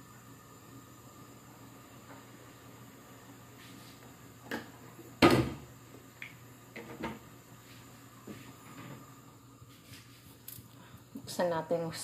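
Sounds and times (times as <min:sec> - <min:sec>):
knocks and clatters at stove: 0:04.5 - 0:05.7, 0:06.7 - 0:07.3.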